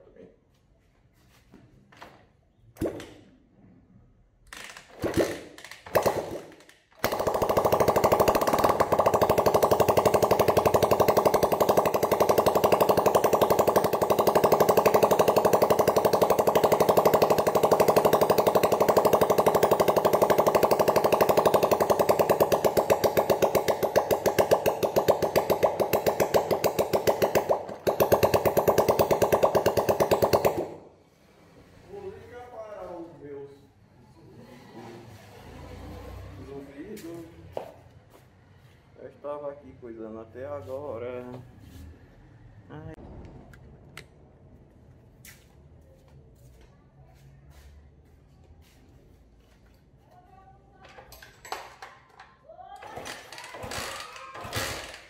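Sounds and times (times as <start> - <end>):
motorcycle engine starting and running: 4.5 - 32.1, 34.3 - 38.2, 52.8 - 55.0.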